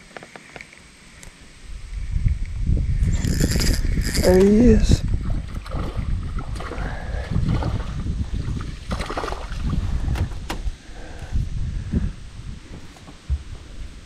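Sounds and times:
water sloshing: 5.2s - 10.1s
fish splashing at the surface: 5.5s - 9.7s.

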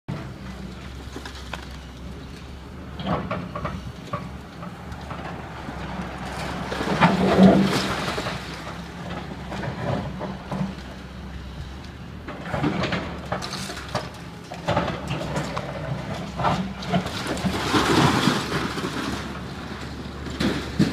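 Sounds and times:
excavator engine running: 0.1s - 20.9s
rubble cracking and crashing: 6.3s - 8.8s, 12.5s - 20.9s.

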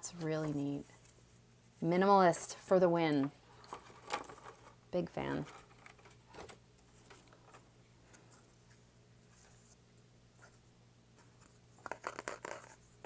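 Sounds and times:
scrapes and taps: 11.4s - 12.8s.

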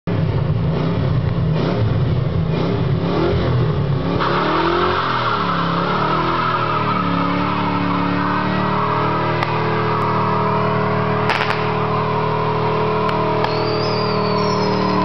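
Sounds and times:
car engine revving hard: 0.7s - 15.0s
tyres squealing: 4.6s - 15.0s.

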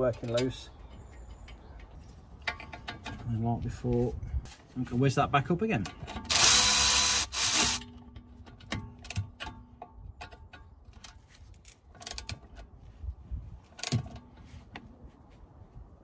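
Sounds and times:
ratchet clicking: 6.3s - 7.8s.

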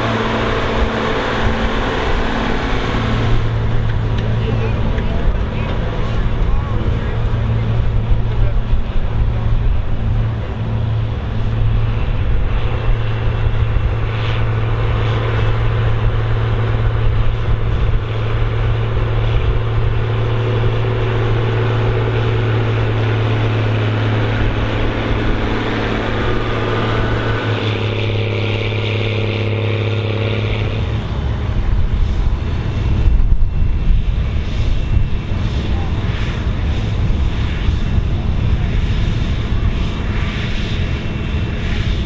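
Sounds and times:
tractor engine under load: 0.0s - 12.0s.

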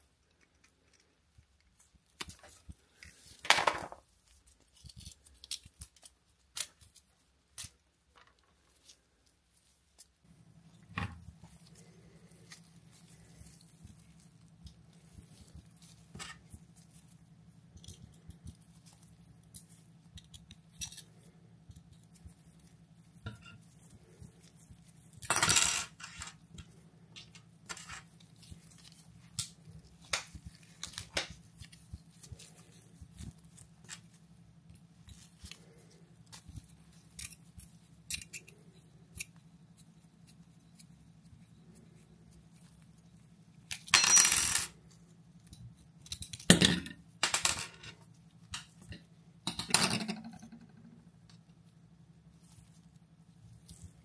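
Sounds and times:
small metal parts clicking: 37.1s - 39.4s.

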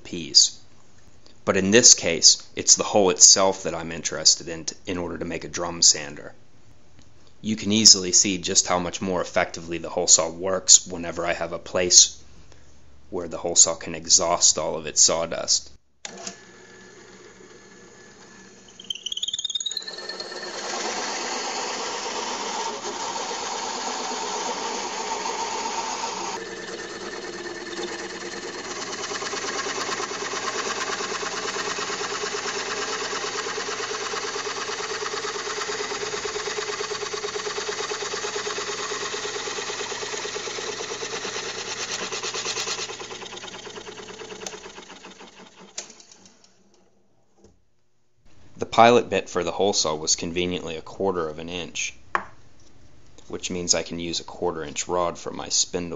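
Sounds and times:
drill press motor hum: 16.0s - 46.9s
hole saw cutting wood: 16.2s - 46.3s.

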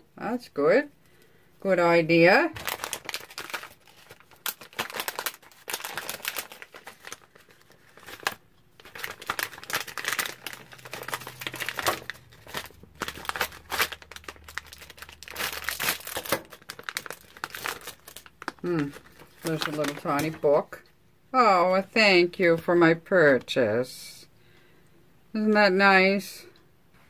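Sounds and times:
packaging crinkling: 2.5s - 20.7s.

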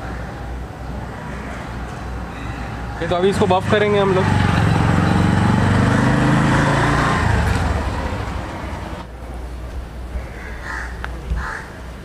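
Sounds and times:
street background: 0.0s - 12.0s
vehicle engine running: 3.0s - 9.1s.

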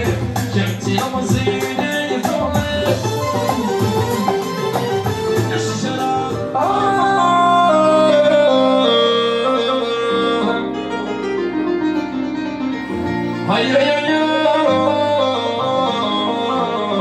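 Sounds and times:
man singing into a microphone: 0.0s - 4.2s, 5.4s - 10.9s, 13.3s - 17.0s
instrumental accompaniment: 0.0s - 17.0s.

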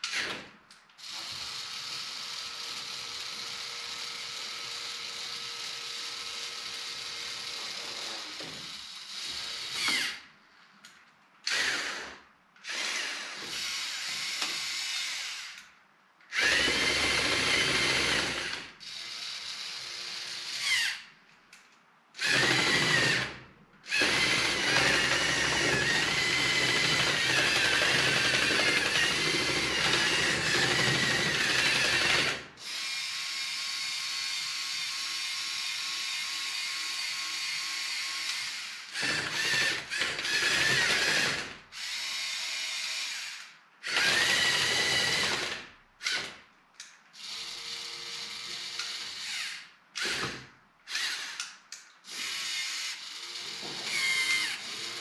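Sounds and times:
toy electric motors whirring: 50.9s - 55.0s.

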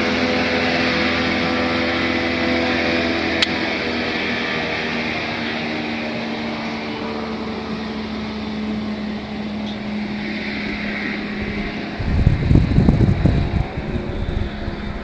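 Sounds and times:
boat motor running: 0.0s - 15.0s
rush of water and air: 0.0s - 15.0s
wind buffeting microphone: 10.2s - 15.0s.

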